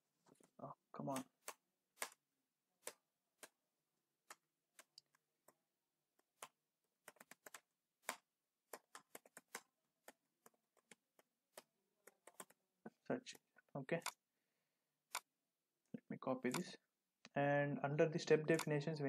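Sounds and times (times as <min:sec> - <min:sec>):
computer keyboard typing: 0:06.3 - 0:12.6.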